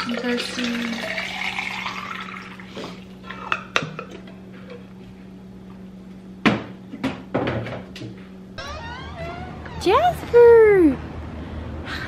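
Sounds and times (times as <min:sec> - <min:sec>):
water trickling into metal cup: 0:00.0 - 0:02.7
steady low hum: 0:00.0 - 0:12.0
knocks and clatter in fridge: 0:06.4 - 0:08.2.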